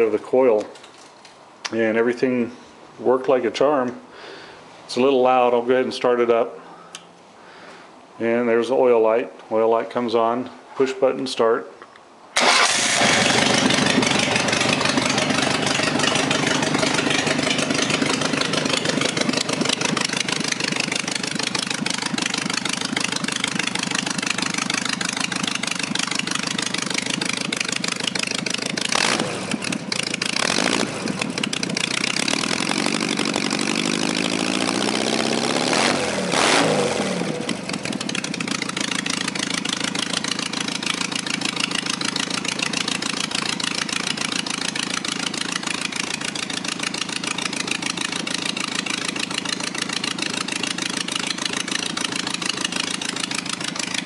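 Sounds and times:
car engine idling and revving: 0:12.4 - 0:54.0.

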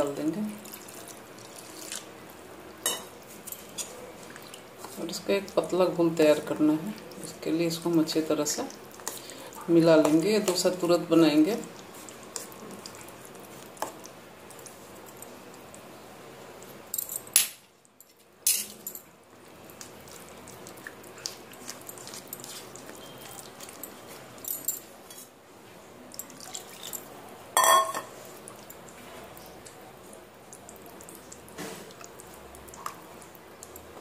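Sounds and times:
batter squelching in bowl: 0:08.5 - 0:15.7, 0:19.4 - 0:24.4.

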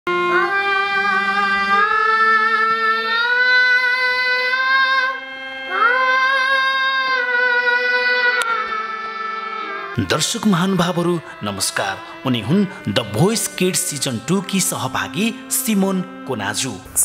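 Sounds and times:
harmonium chords: 0:00.1 - 0:17.0
girl singing long notes: 0:00.2 - 0:10.0.

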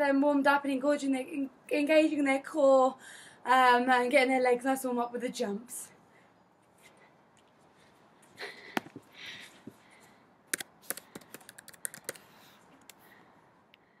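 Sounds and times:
fingers tapping recording device: 0:10.5 - 0:13.0.

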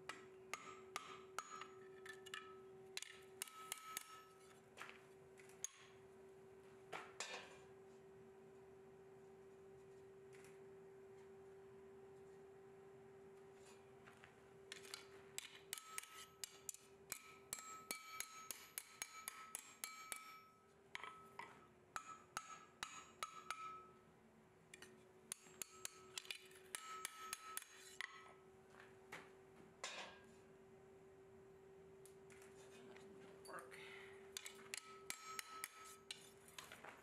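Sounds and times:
hammer striking steel on anvil: 0:00.1 - 0:04.6, 0:05.5 - 0:06.0, 0:14.7 - 0:24.0, 0:24.7 - 0:28.4, 0:34.3 - 0:36.4.

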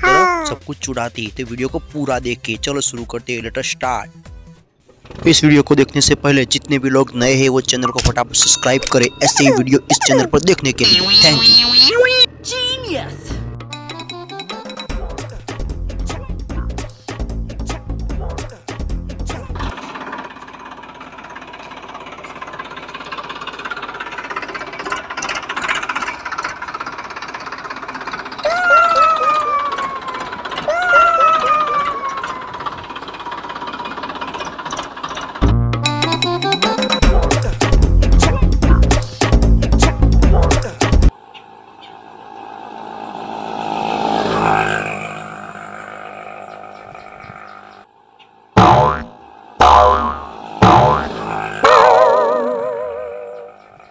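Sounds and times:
small engine passing by: 0:19.4 - 0:37.0, 0:41.1 - 0:53.9
toy tractor rattling: 0:19.7 - 0:28.6, 0:29.2 - 0:35.4.

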